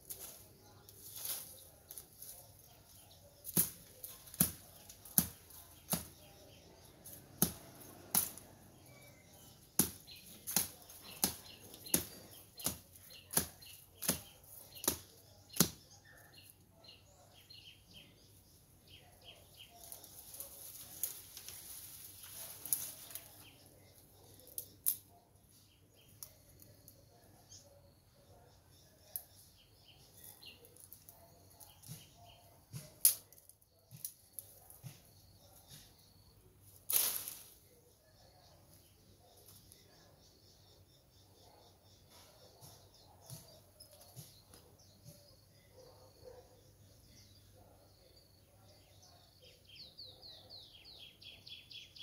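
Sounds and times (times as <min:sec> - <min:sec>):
machete chopping brush stems: 0:00.0 - 0:15.9, 0:19.8 - 0:23.6, 0:30.7 - 0:36.0, 0:36.6 - 0:37.7
leaves and branches rustling: 0:00.0 - 0:16.6, 0:19.0 - 0:25.1, 0:36.6 - 0:37.8.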